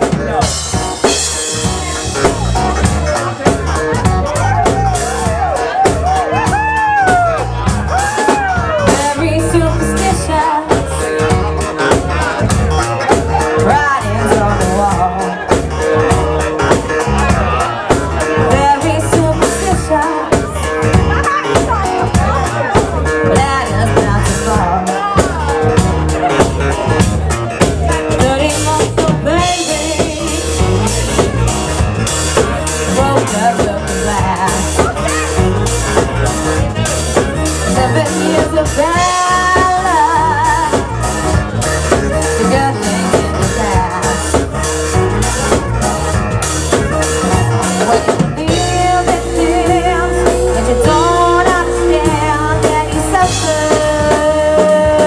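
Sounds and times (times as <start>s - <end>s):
band instruments: 0.0s - 55.0s
drum kit beat: 0.0s - 55.0s
woman singing into microphone: 8.9s - 10.9s, 13.6s - 15.4s, 18.4s - 20.6s, 23.2s - 25.3s, 28.1s - 30.7s, 32.9s - 34.9s, 37.7s - 41.0s, 42.4s - 44.1s, 47.9s - 55.0s.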